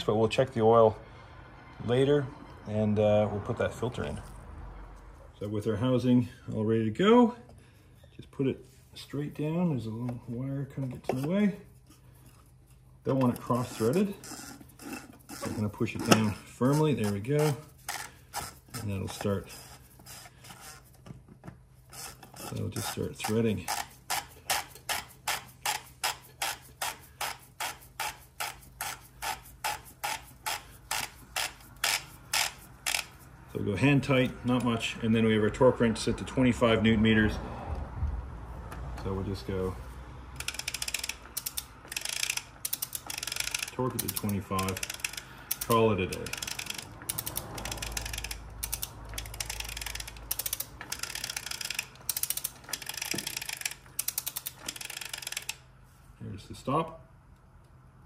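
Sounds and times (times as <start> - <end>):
ratchet wrench clicking: 13.2 - 20.6, 21.8 - 33.3, 40.4 - 55.7.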